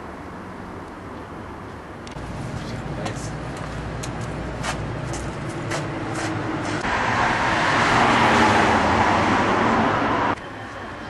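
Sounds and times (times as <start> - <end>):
vehicle passing on street: 0.0 - 11.0.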